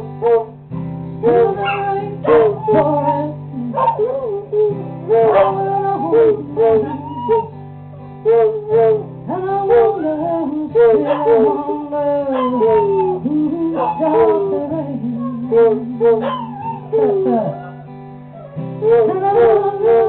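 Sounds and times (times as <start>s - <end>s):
strummed guitar: 0.0s - 20.0s
dogs howling: 1.3s - 4.4s, 5.1s - 7.5s, 9.6s - 20.0s.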